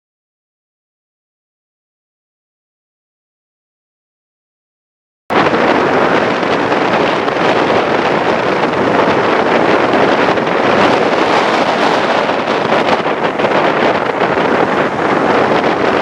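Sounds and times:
road and tyre noise: 0:05.3 - 0:16.0
wind buffeting microphone: 0:05.3 - 0:16.0.

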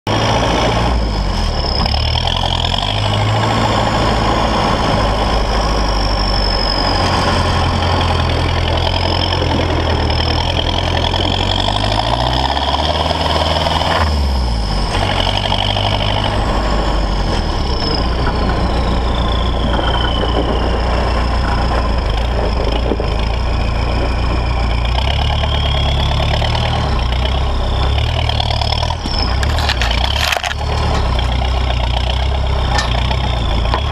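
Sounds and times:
diesel engine revving: 0:00.1 - 0:33.9
high gliding whine: 0:00.1 - 0:33.9
tyres on gravel: 0:15.0 - 0:33.9.

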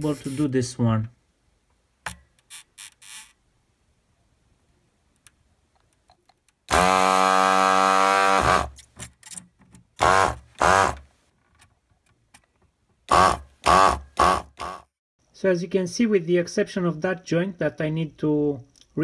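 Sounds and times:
vacuum pump humming: 0:06.7 - 0:08.7.

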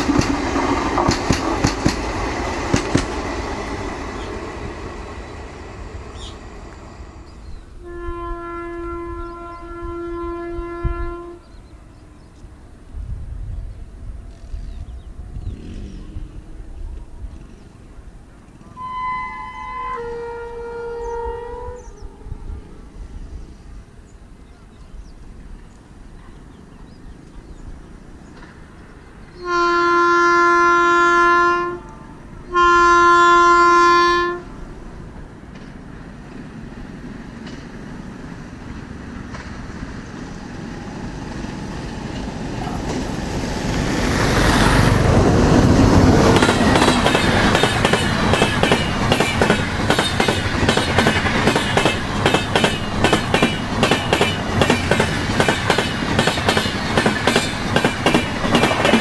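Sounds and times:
train running past: 0:00.0 - 0:59.0
locomotive horn blasts: 0:07.8 - 0:11.6, 0:18.7 - 0:22.9, 0:29.4 - 0:34.6.

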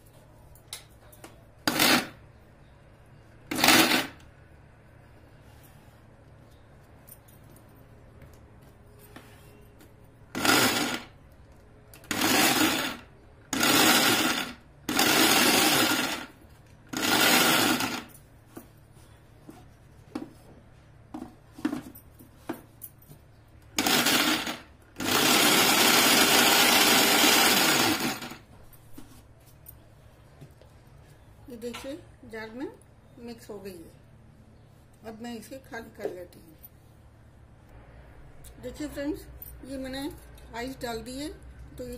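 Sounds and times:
mixer grinder running: 0:03.5 - 0:04.2, 0:10.4 - 0:11.1, 0:12.1 - 0:18.1, 0:23.8 - 0:28.4.

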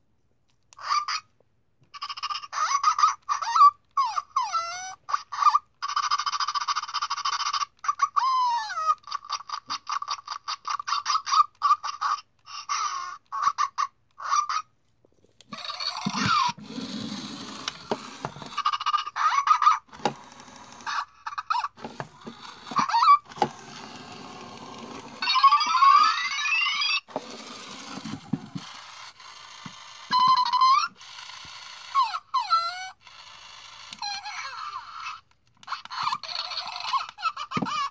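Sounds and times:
toy handling noise: 0:01.8 - 0:37.9
toy electronic yips and chirps: 0:15.5 - 0:37.9.

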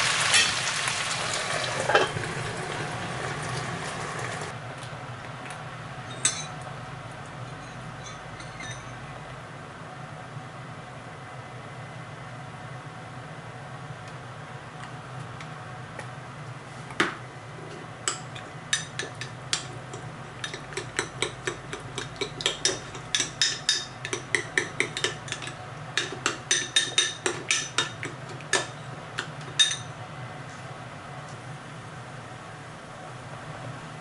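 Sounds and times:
utensils clinking against dishes: 0:01.8 - 0:02.2, 0:06.0 - 0:06.6, 0:07.4 - 0:09.1, 0:18.1 - 0:30.0
steady low hum: 0:04.5 - 0:34.0.

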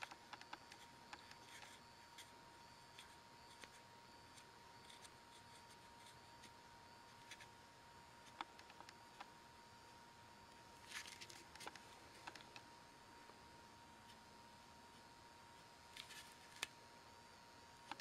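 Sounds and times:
woodburning pen scratching wood: 0:00.0 - 0:07.6
faint high whine: 0:00.0 - 0:18.0.

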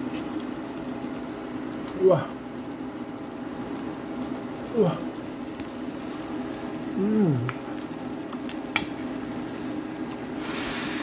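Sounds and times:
man humming: 0:06.9 - 0:07.7.

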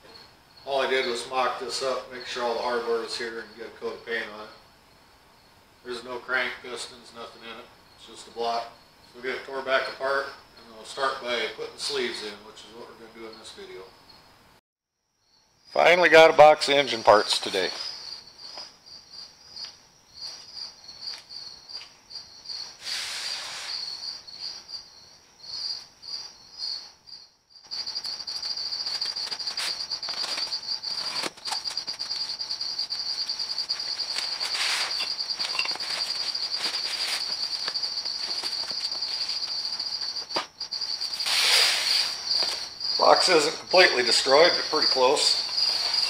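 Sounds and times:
insect chirping trill: 0:00.0 - 0:46.0.

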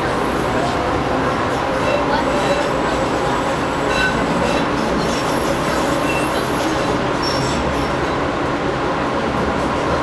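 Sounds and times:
train wheels rumbling on rails: 0:00.0 - 0:10.0
faint high wheel squeals: 0:05.9 - 0:08.0.

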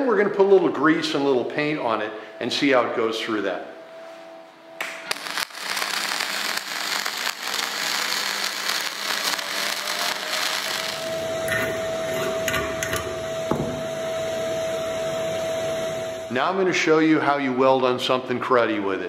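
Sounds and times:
welding arc crackling: 0:04.8 - 0:11.8.

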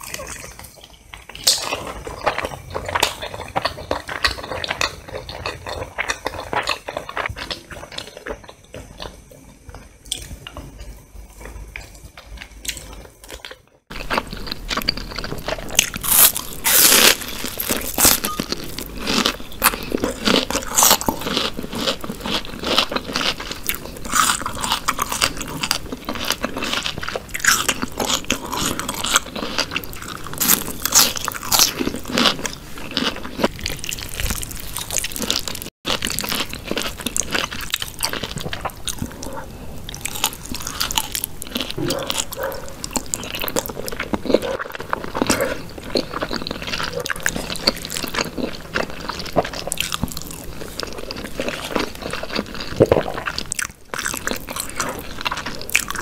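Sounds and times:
wet chewing: 0:00.0 - 0:56.0
crunchy bites of onion: 0:13.4 - 0:56.0.

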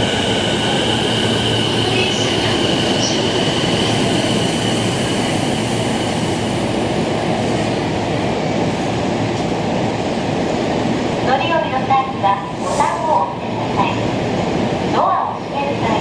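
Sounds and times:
train rolling noise: 0:00.0 - 0:16.0.

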